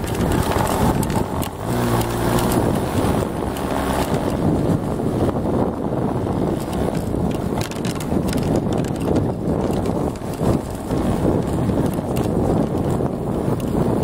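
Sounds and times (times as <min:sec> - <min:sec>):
knocks and rattles: 0:00.0 - 0:04.4, 0:06.6 - 0:13.0
moped engine running: 0:00.0 - 0:14.0
wind buffeting microphone: 0:00.0 - 0:14.0.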